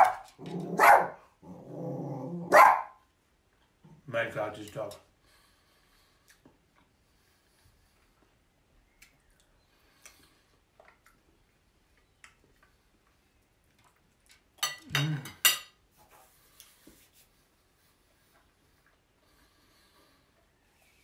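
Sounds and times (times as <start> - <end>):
cutlery clattering on a plate: 14.6 - 15.8.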